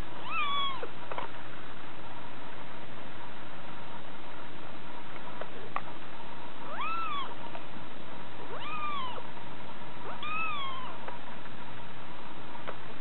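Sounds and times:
kitten mewing: 0:00.2 - 0:00.9, 0:06.7 - 0:07.4, 0:08.4 - 0:09.3, 0:10.0 - 0:11.1.

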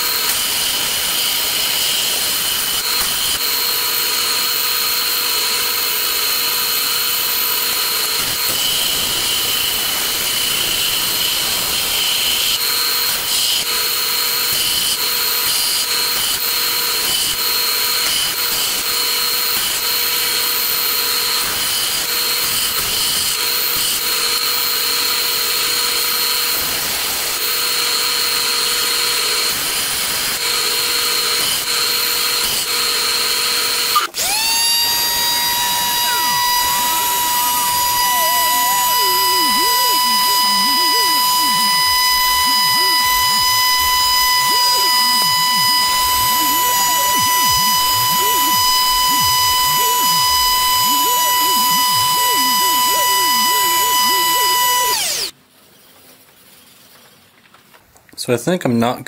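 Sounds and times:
belt sander running: 0:00.0 - 0:55.3
wood being sanded: 0:30.8 - 0:55.3.

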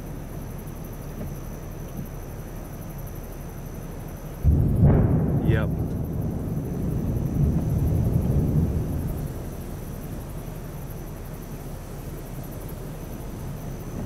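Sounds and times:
distant thunder rumbling: 0:04.4 - 0:14.0.

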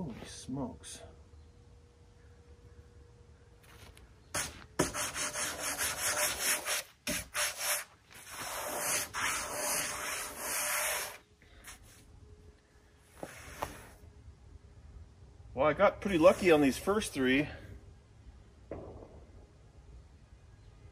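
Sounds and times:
wood scraping on wood: 0:03.7 - 0:11.2.

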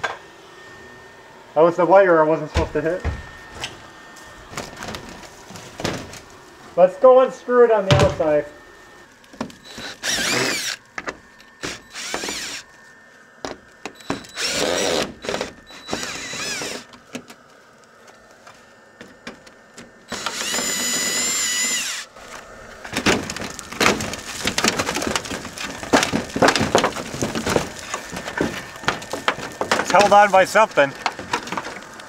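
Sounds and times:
wood knocking and cracking: 0:02.6 - 0:03.7, 0:04.5 - 0:06.3, 0:09.3 - 0:12.5, 0:22.3 - 0:32.0
power drill whining: 0:08.2 - 0:13.0, 0:13.8 - 0:17.0, 0:20.1 - 0:24.8.

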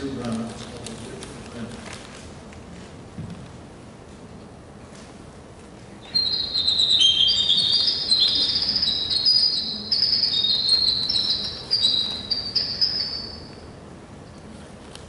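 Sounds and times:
bird song over loudspeaker: 0:06.0 - 0:13.6.

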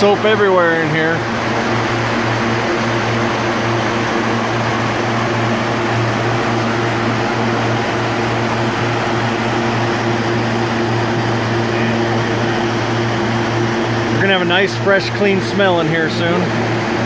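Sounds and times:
low fan hum: 0:00.0 - 0:17.0.

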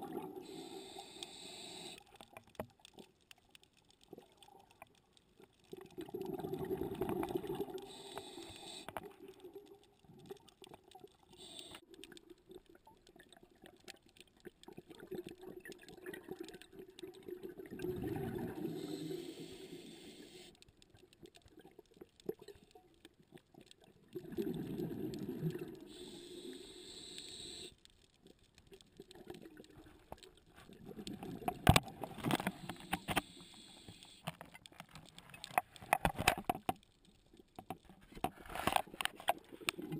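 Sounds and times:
exhaled bubbles gurgling underwater: 0:00.0 - 0:02.0, 0:05.7 - 0:20.5, 0:21.1 - 0:27.7, 0:28.8 - 0:34.1
diver breathing through regulator: 0:00.4 - 0:02.1, 0:07.7 - 0:09.0, 0:18.4 - 0:20.6, 0:25.9 - 0:27.8, 0:32.2 - 0:34.3.

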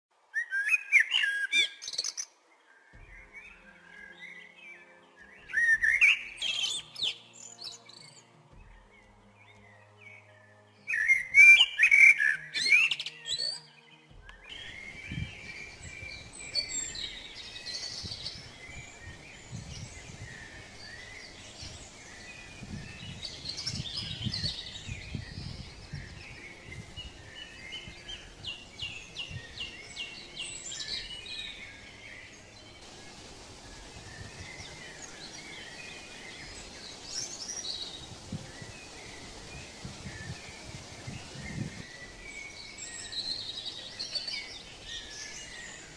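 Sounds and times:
songbirds chirping and singing: 0:00.2 - 0:45.9.

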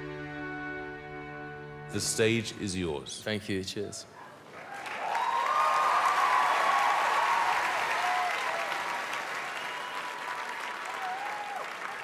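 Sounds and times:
audience applauding and cheering: 0:04.5 - 0:12.0.

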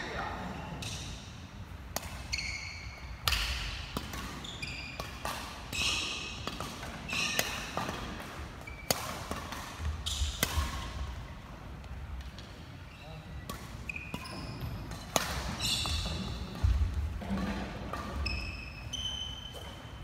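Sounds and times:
racket striking shuttlecock: 0:01.9 - 0:02.5, 0:03.2 - 0:11.0, 0:14.8 - 0:18.2.

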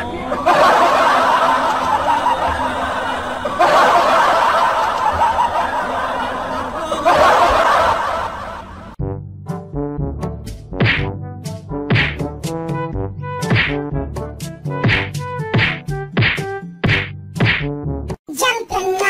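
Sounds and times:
laugh track crowd laughter: 0:00.0 - 0:09.0
music with sharp clicks: 0:10.4 - 0:12.7, 0:13.4 - 0:17.8.

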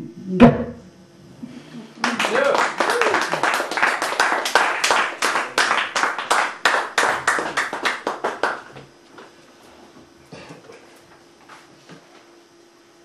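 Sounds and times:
audience clapping: 0:02.0 - 0:08.9.

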